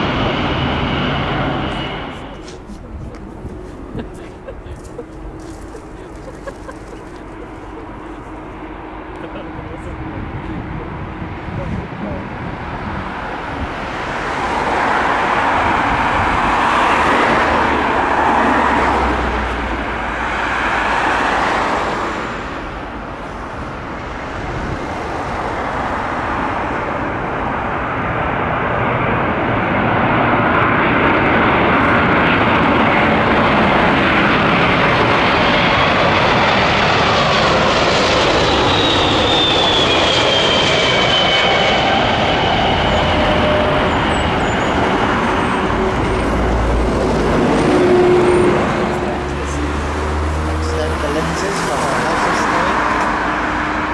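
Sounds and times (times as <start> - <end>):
high jet whine: 0.0 - 53.9
jet engines roaring overhead: 0.0 - 53.9.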